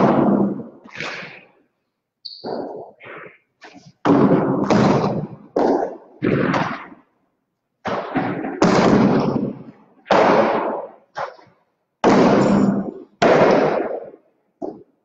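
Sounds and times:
ball cracking against walls: 2.4s - 7.1s, 7.8s - 15.0s.

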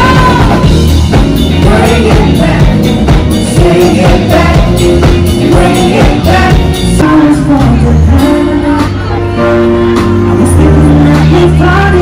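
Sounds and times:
backing singers: 0.0s - 0.9s, 1.5s - 9.1s
steady drum beat: 0.0s - 7.1s
woman singing lead: 0.0s - 12.0s.

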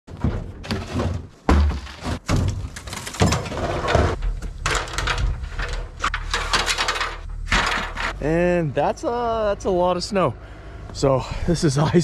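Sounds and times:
ladder and gear thudding: 0.1s - 8.2s.

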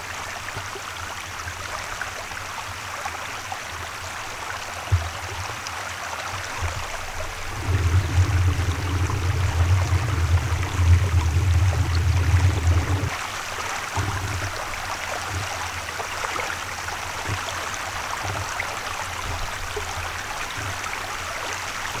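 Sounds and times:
flowing water rushing: 0.0s - 22.0s
low rumble: 7.2s - 13.1s.

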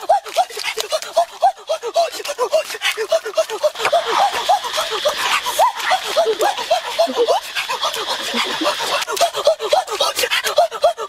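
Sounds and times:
high insect drone: 0.0s - 11.0s
chirping animal calls: 2.8s - 10.0s.

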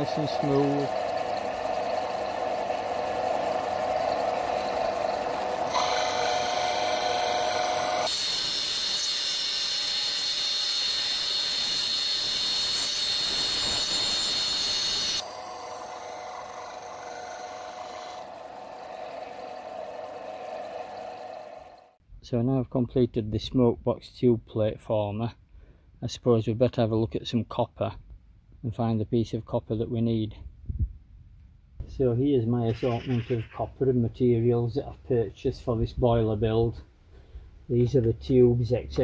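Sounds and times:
disc sander motor whine: 0.0s - 22.0s.

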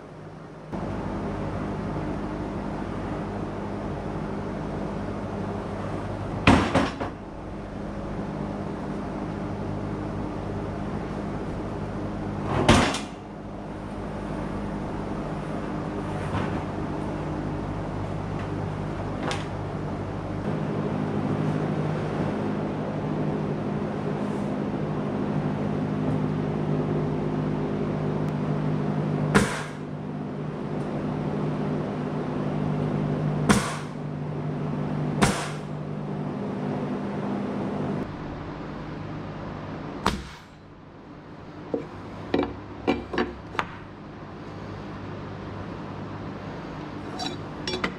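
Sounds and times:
steady mechanical hum: 0.0s - 47.9s
nail gun shots: 29.4s - 29.8s, 33.5s - 34.0s, 35.2s - 35.7s, 40.1s - 40.5s.

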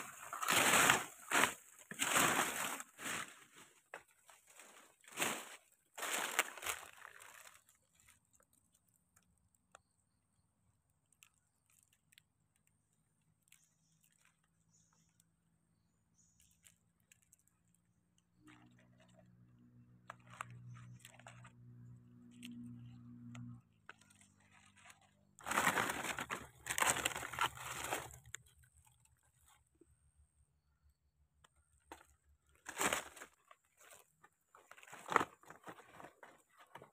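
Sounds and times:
dry leaves crunching: 0.0s - 8.1s, 20.0s - 21.6s, 23.9s - 29.0s, 31.9s - 36.9s.

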